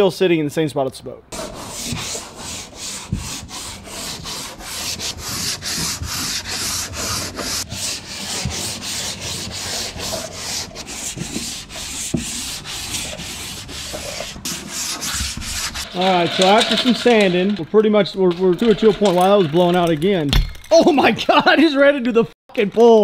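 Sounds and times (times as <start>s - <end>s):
sanding block on metal: 1.3s - 17.5s.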